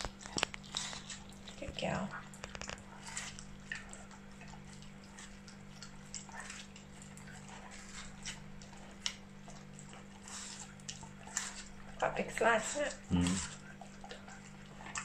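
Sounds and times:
puppy licking and lapping: 0.0 - 15.0.

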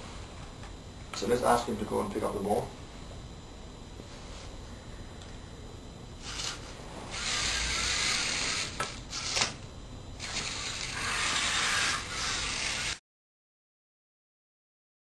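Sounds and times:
robot motors and gears whirring: 6.2 - 9.6, 10.2 - 13.0.

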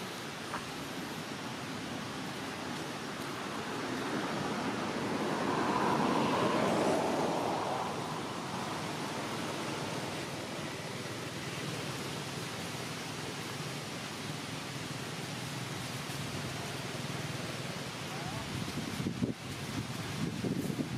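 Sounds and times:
steady rushing background noise: 0.0 - 20.9
vehicle passing: 2.5 - 12.0.

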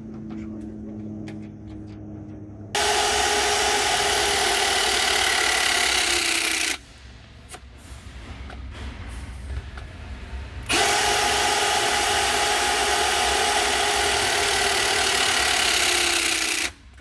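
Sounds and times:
hydraulic crimper motor whining: 2.8 - 6.8, 10.6 - 17.0.

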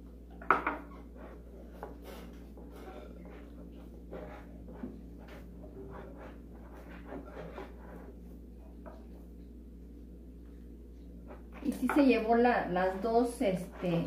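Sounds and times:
hands kneading dough: 10.7 - 14.0.

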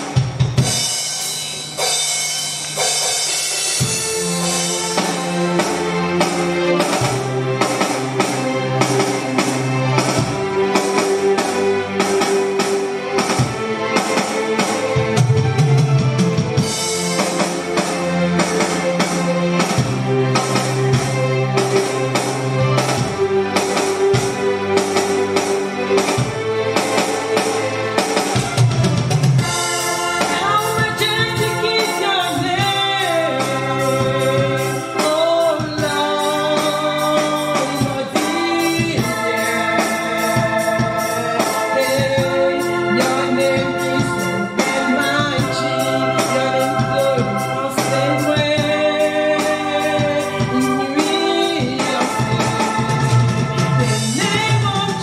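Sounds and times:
keyboard chords over programmed beat: 0.0 - 55.0
woman singing into microphone: 30.3 - 53.2, 53.8 - 55.0.

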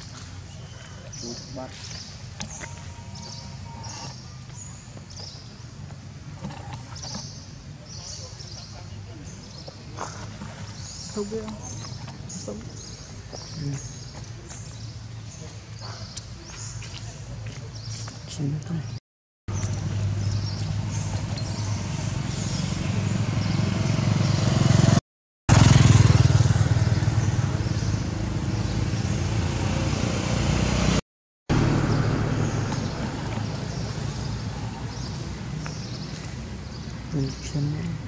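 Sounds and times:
vehicle engine humming: 19.5 - 38.0.

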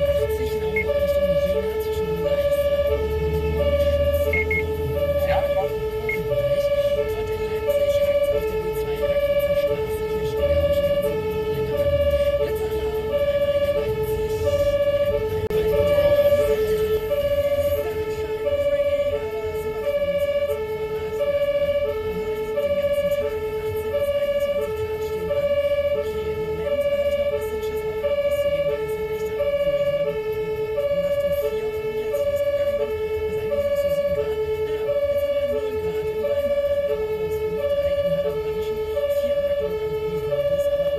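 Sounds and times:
engine and road rumble: 0.0 - 40.9
two-tone ambulance siren: 0.0 - 40.9.

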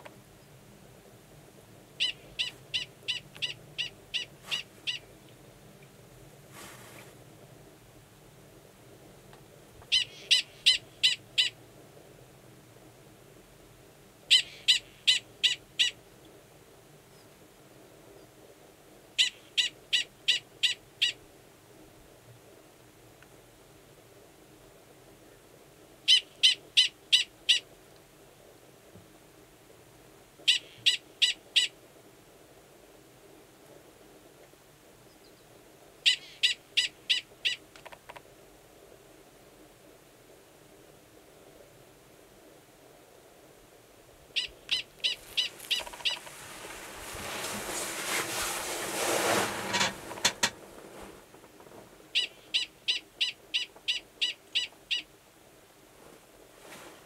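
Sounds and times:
prairie dog short high calls: 2.0 - 5.0.

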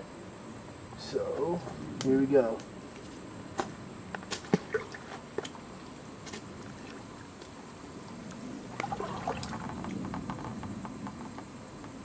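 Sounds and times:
creek water sloshing and splashing: 4.3 - 7.4, 8.7 - 9.9.

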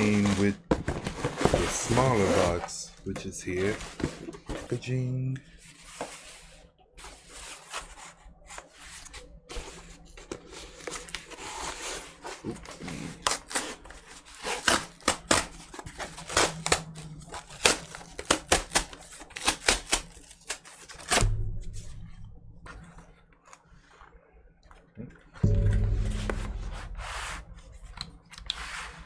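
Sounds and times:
cardboard tearing crackles: 10.7 - 21.3.

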